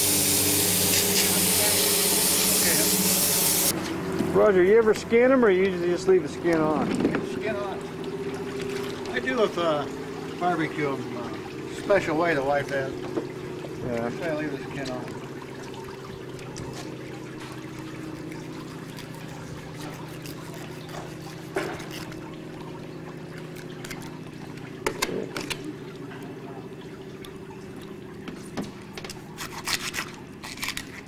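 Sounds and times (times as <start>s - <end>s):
steady low hum: 0.0s - 29.5s
running water pouring: 0.0s - 31.0s
clicks and knocks of tools: 23.5s - 26.2s.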